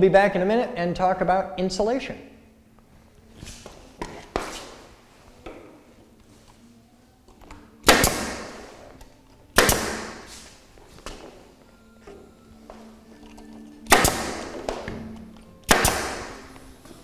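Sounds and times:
pneumatic stapler bang and hiss: 7.8s - 8.8s, 9.6s - 10.6s, 13.9s - 14.9s, 15.6s - 16.5s.

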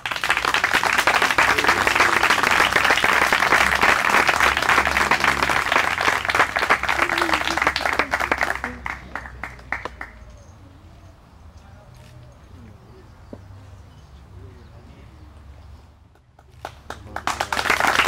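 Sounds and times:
crowd applauding: 0.0s - 10.3s, 16.2s - 18.0s.

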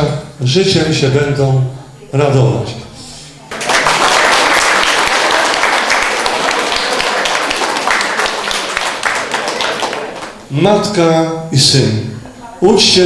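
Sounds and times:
audience applauding: 3.5s - 10.5s.

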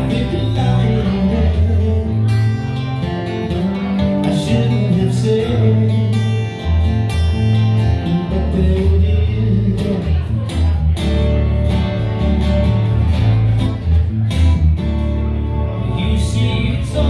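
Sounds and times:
acoustic guitar: 0.0s - 17.0s
electric bass: 0.0s - 17.0s
keyboard: 0.0s - 17.0s.

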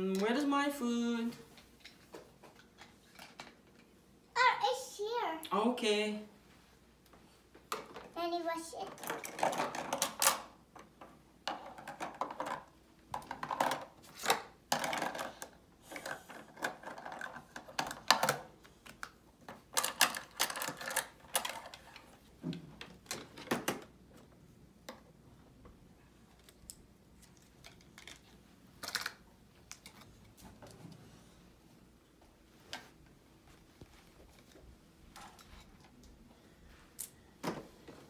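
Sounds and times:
plastic toy dishes clattering: 8.9s - 10.5s, 11.5s - 18.5s, 19.5s - 22.1s, 27.6s - 29.2s.

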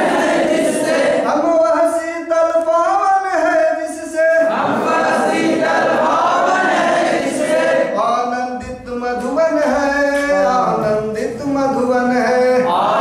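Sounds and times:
men singing in unison: 4.4s - 13.0s.

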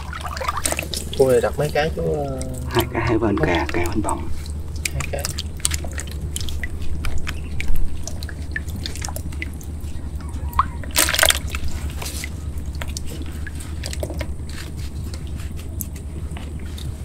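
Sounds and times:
steady low hum: 0.0s - 17.0s
water dripping and sloshing: 0.0s - 17.0s
loud splash: 10.6s - 11.8s.

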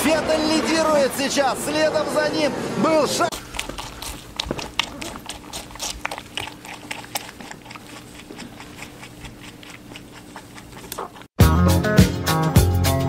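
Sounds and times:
rabbit chewing watermelon: 3.3s - 11.4s.

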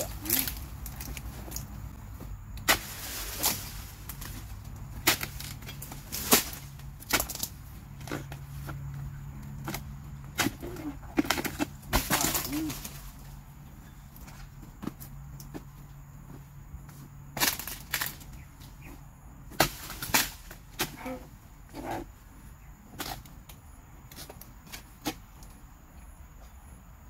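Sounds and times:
chisel chopping palm fronds: 2.6s - 8.8s, 9.6s - 13.2s, 17.4s - 18.4s, 19.5s - 21.3s.

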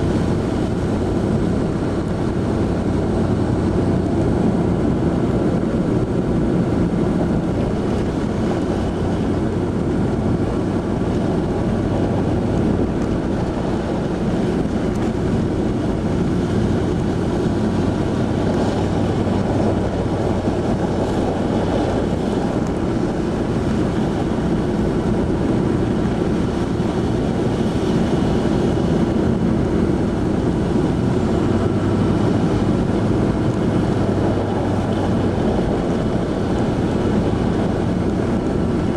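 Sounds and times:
road noise: 0.0s - 38.9s
vehicle engine hum: 0.0s - 38.9s.

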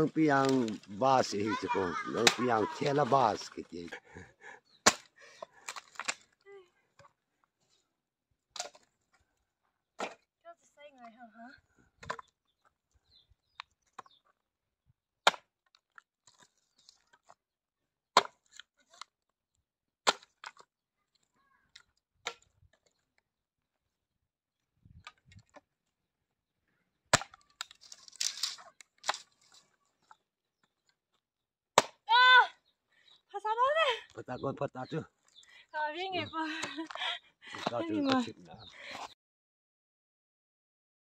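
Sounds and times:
wood crackling and splintering: 0.0s - 6.4s, 15.3s - 17.4s, 27.1s - 31.2s
firewood being chopped: 0.2s - 0.8s, 1.6s - 3.5s, 4.8s - 6.2s, 10.0s - 10.3s, 12.0s - 12.4s, 15.2s - 15.9s, 18.1s - 18.7s, 20.0s - 20.7s, 27.1s - 29.3s, 31.8s - 32.2s.

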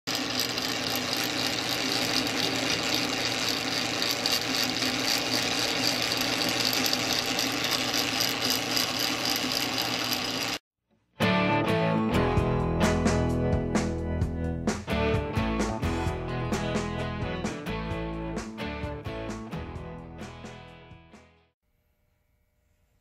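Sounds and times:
lathe gears clattering: 0.1s - 10.6s.

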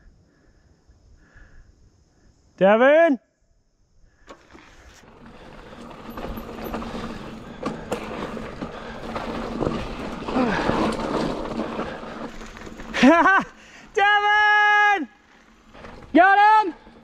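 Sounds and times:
bike tyre and wind noise: 3.8s - 17.0s
bike rattling clicks and knocks: 4.3s - 13.5s.

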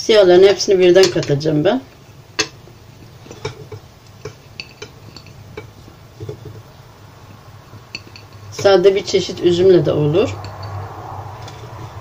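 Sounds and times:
grapes clinking in porcelain bowl: 0.5s - 11.6s.

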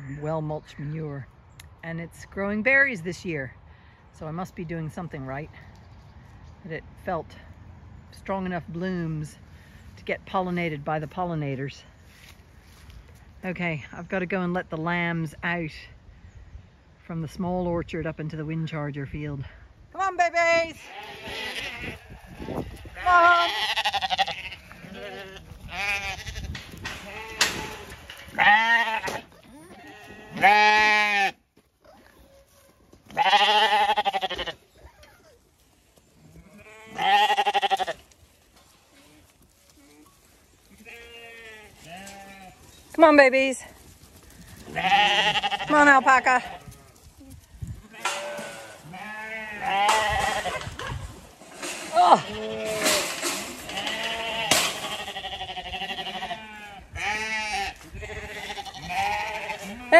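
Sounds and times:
lambs bleating: 20.8s - 31.4s, 33.1s - 35.1s, 36.4s - 38.1s, 40.7s - 42.7s, 44.6s - 47.0s, 47.8s - 51.0s, 51.6s - 59.9s.

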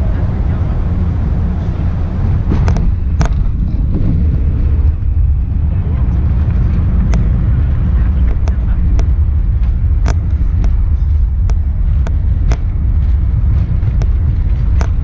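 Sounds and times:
airplane cabin low rumble: 0.0s - 15.0s
sharp clicks and knocks: 2.5s - 4.6s, 6.4s - 7.5s, 8.2s - 15.0s.

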